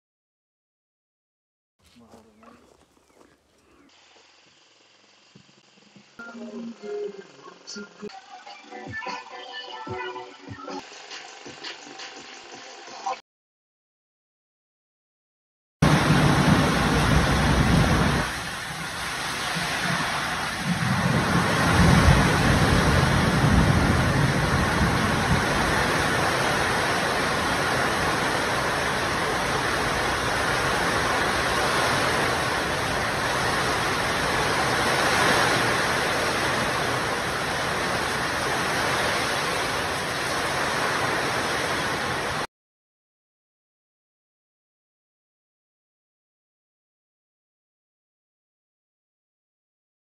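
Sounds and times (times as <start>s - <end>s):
heavy rain pouring: 15.8s - 42.5s.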